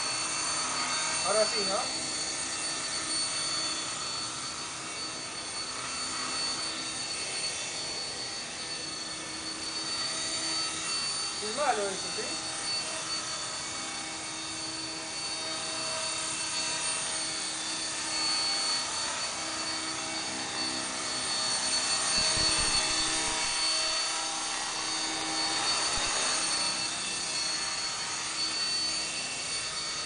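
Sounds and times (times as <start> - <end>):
model helicopter motor whine: 0.0 - 30.0
rotor blades whirring: 15.3 - 28.5.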